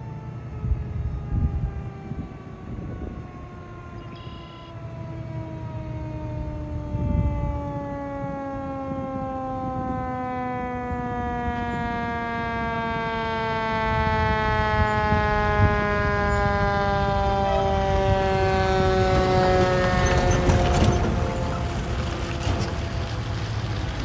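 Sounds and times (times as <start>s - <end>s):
mechanical siren winding down: 0.0s - 21.9s
truck engine and tyres: 11.2s - 24.0s.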